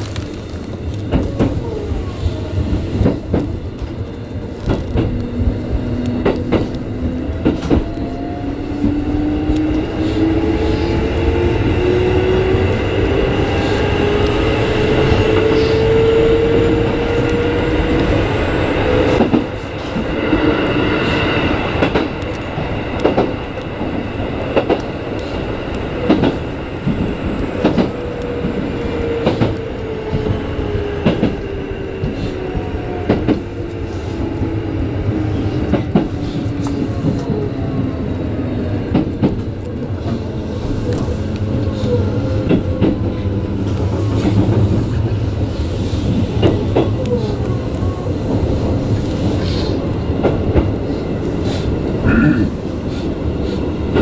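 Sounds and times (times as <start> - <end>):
steady train rumble: 0.0 - 54.0
train wheels clicking over rail joints: 2.6 - 16.2, 17.1 - 28.6, 29.2 - 33.8.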